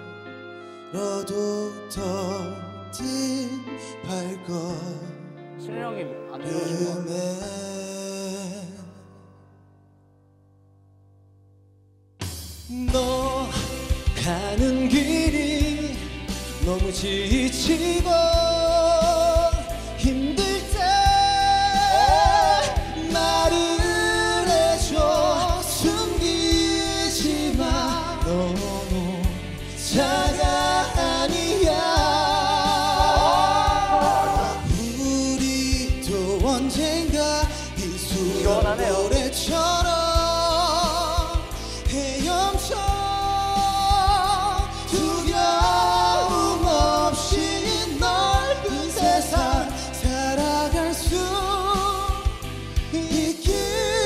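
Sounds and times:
male vocal duet singing ballad: 0:00.6 - 0:09.2, 0:12.7 - 0:54.0
band with drums and bass: 0:12.2 - 0:54.0.

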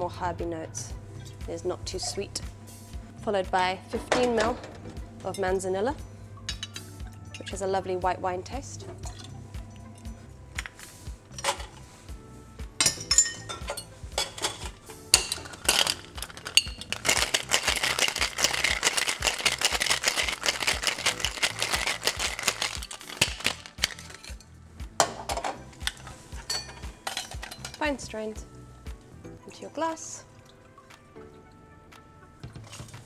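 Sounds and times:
ice clinking in metal tin: 0:12.8 - 0:24.4, 0:25.9 - 0:27.8
ice rattling in shaken cocktail shaker: 0:15.2 - 0:24.4.

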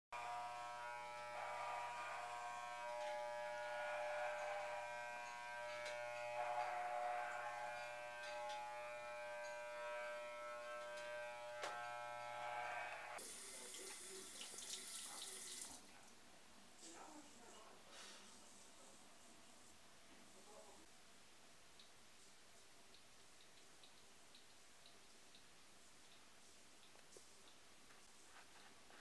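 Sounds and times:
electric hair clippers buzzing: 0:00.2 - 0:13.3.

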